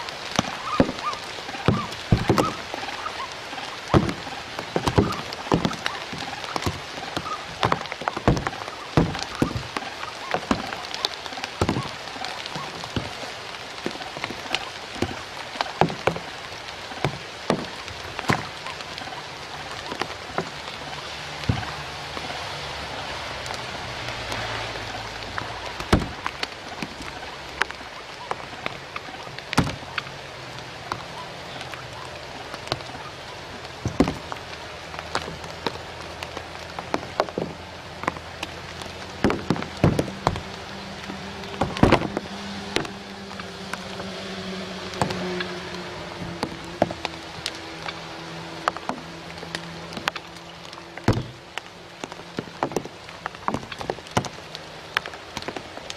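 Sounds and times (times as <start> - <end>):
rain on reeds and leaves: 0.0 - 55.9
sharp raindrops striking: 0.0 - 55.9.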